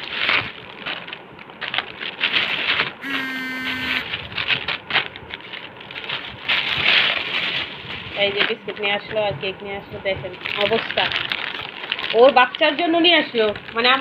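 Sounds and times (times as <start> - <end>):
plastic bag rustling: 0.0 - 3.0, 4.0 - 9.0, 10.2 - 14.0
steady pitched tone: 3.0 - 4.1.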